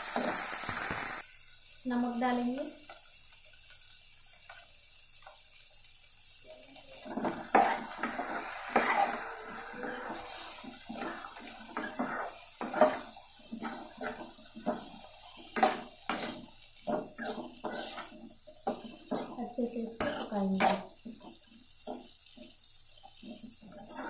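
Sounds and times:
steel ladle scraping a pan: 0:07.1 - 0:19.4, 0:23.7 - 0:24.0.

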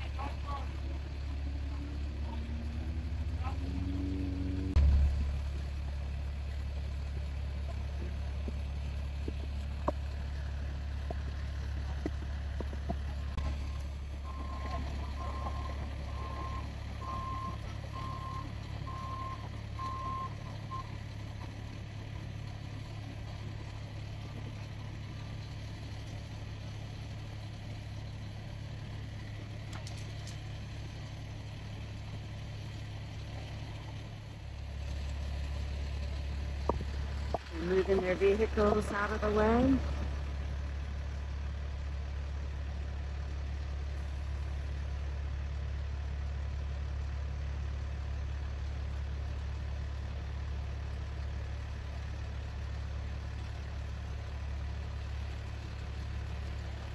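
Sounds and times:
heavy vehicles idling: 0:00.0 - 0:56.9
truck reversing alarm beeps: 0:13.4 - 0:21.1.

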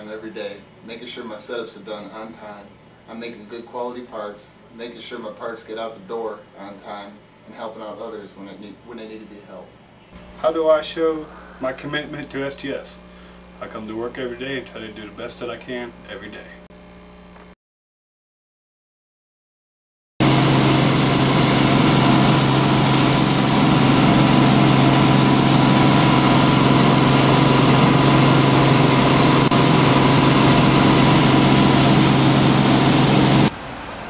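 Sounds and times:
helicopter engine and rotors droning: 0:20.2 - 0:33.5.

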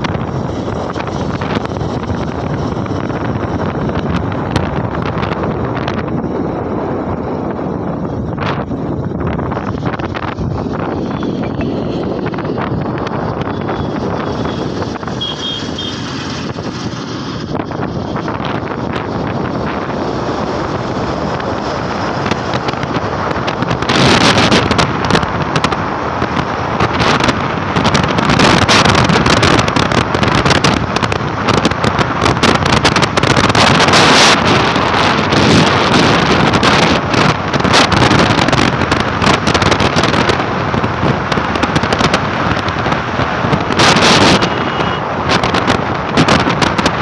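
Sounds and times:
road and vehicle noise: 0:00.0 - 0:47.0
wind buffeting microphone: 0:00.0 - 0:47.0.

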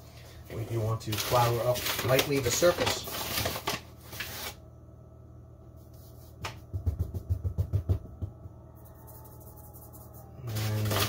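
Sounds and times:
dull thumps on countertop: 0:06.4 - 0:08.6.

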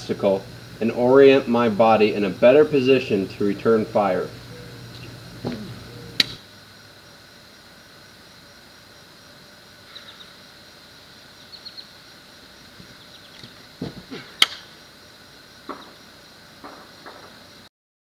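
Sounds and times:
steady outdoor hiss: 0:00.0 - 0:17.7
sharp loud snap: 0:05.4 - 0:06.4, 0:13.9 - 0:14.7
faint high chirps: 0:09.8 - 0:10.4
dull thuds of body hitting ground: 0:13.8 - 0:14.3.

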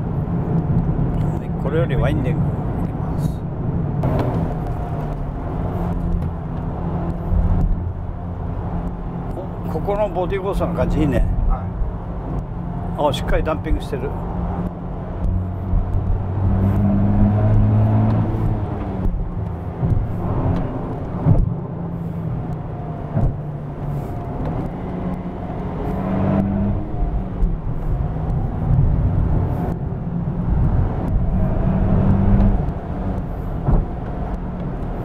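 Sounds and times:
road noise: 0:00.0 - 0:35.0
car engine revving: 0:01.2 - 0:35.0
short thumps: 0:14.6 - 0:21.7, 0:22.5 - 0:24.8, 0:32.0 - 0:34.4.

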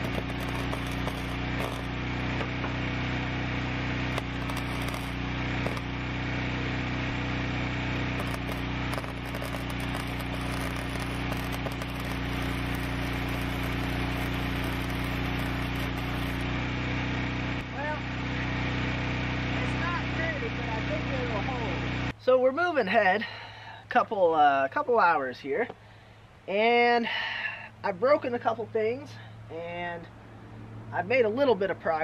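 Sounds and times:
welding arc crackling: 0:00.0 - 0:17.7
welder electrical hum: 0:00.0 - 0:22.2.

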